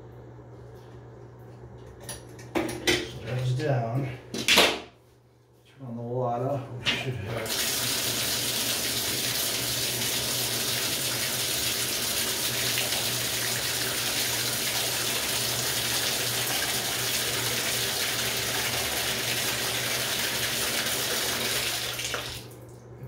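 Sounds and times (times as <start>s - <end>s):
water pouring into bathtub: 7.4s - 22.8s.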